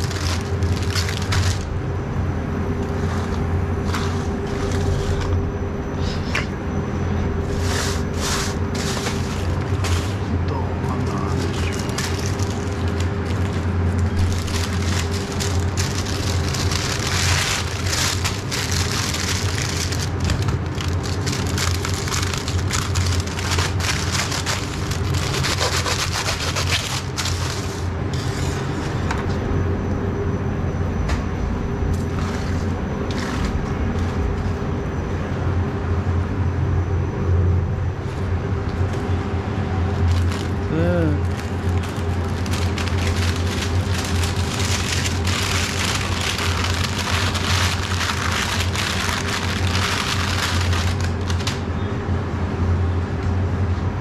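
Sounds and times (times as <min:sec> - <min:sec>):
paper wrapper crinkling: 0:00.0 - 0:01.7, 0:07.5 - 0:10.3, 0:10.9 - 0:27.9, 0:39.9 - 0:51.6
steady low hum: 0:00.0 - 0:54.0.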